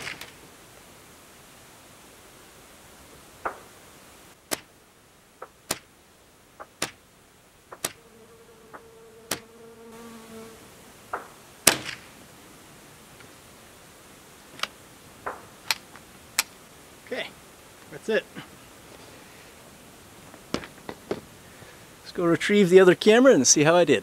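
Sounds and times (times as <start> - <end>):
fly buzzing: 7.7 - 12.1
distant rifle shots: 11.1 - 12.1.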